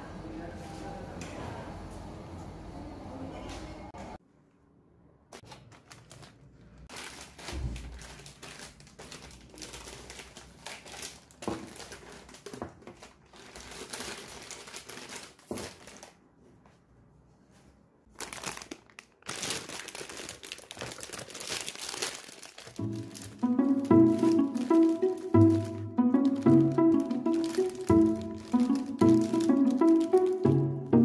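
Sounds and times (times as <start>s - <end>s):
paper bag rustling: 5.3s - 16.2s, 18.1s - 31.0s
plastic wrappers crinkling: 5.3s - 16.2s, 18.1s - 31.0s.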